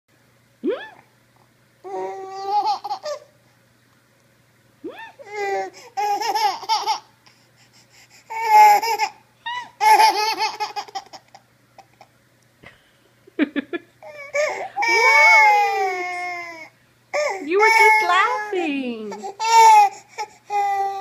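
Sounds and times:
baby laughing: 0:01.9 - 0:03.3, 0:05.0 - 0:07.1, 0:08.3 - 0:12.0, 0:14.0 - 0:21.0
baby crying: 0:08.3 - 0:11.0, 0:14.0 - 0:21.0.

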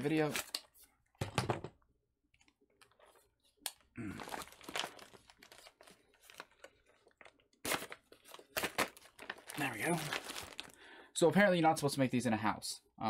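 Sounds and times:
plastic pouch crinkling and tearing: 0:03.7 - 0:10.9.

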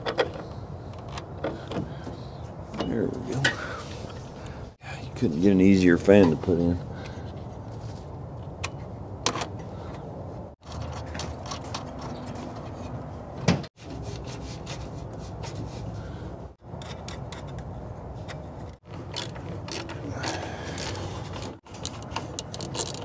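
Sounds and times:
metal and plastic parts clicking: 0:16.8 - 0:23.0.

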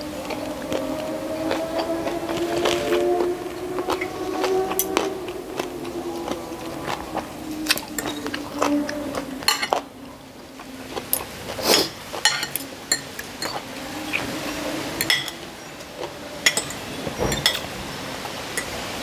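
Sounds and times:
cutlery clinking on ceramic plate: 0:09.5 - 0:09.8, 0:12.2 - 0:13.6, 0:15.0 - 0:15.4, 0:16.4 - 0:17.7.

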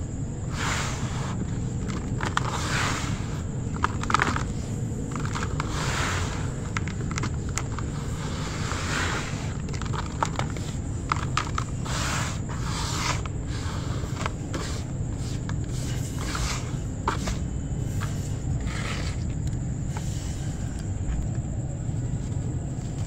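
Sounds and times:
hands rubbing ash in basin: 0:00.5 - 0:19.4.

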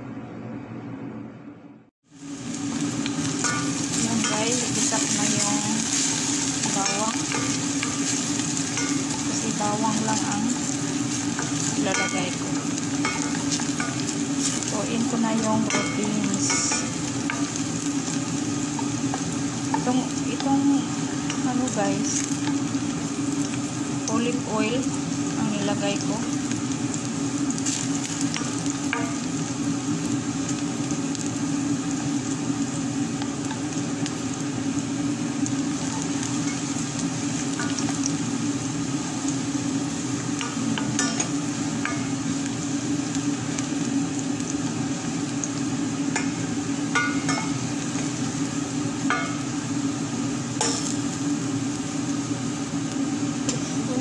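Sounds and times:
garlic sizzling in oil: 0:02.0 - 0:54.0.

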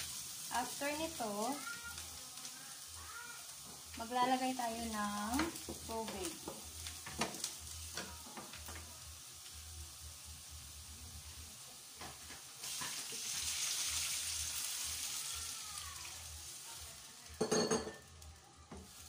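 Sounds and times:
meat sizzling in hot oil: 0:00.0 - 0:19.0
water poured into hot pan: 0:12.5 - 0:17.5.

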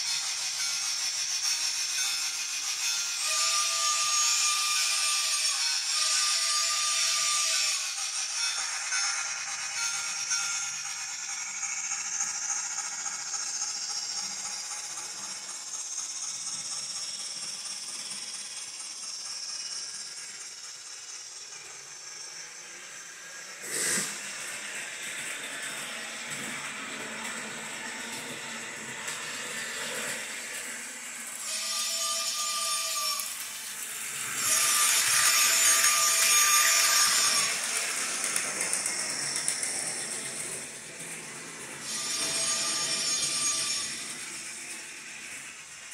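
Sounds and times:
gears and wheels rattling on track: 0:06.6 - 0:32.4, 0:33.2 - 0:45.9
steam hiss: 0:10.0 - 0:45.9
loud hissing: 0:19.5 - 0:24.5.

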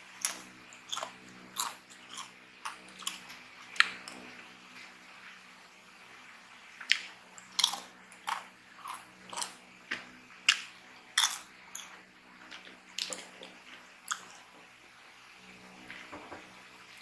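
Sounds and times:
corn chips being chewed: 0:00.1 - 0:04.2, 0:06.8 - 0:14.5.

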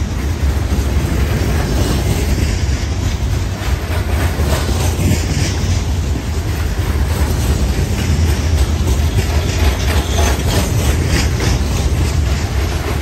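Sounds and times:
train wheels rumbling on rails: 0:00.0 - 0:13.0
wheels clicking and clanking: 0:00.0 - 0:13.0.

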